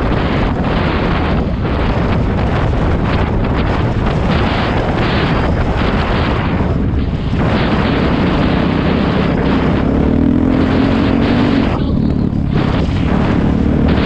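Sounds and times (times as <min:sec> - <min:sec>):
dirt bike engine running: 0:00.0 - 0:14.0
wind buffeting microphone: 0:00.0 - 0:14.0.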